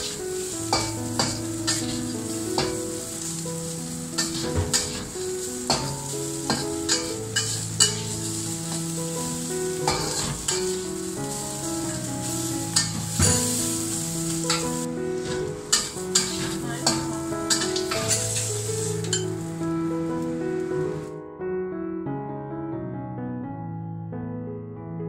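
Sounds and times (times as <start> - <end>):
vegetables sizzling in a wok: 0.0 - 21.1
background music: 0.0 - 21.3
metal spatula scraping a wok: 0.4 - 9.0, 9.8 - 11.1, 11.9 - 19.4.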